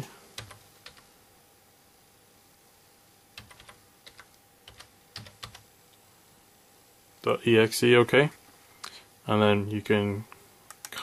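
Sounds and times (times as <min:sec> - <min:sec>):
faint steady hum: 0:00.0 - 0:11.0
typing on computer keyboard: 0:00.4 - 0:01.0, 0:03.4 - 0:05.6.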